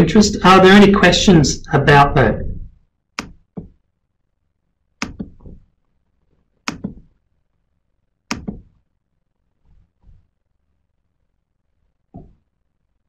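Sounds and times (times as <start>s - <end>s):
computer keys clicking: 5.0s - 5.5s, 6.6s - 7.0s.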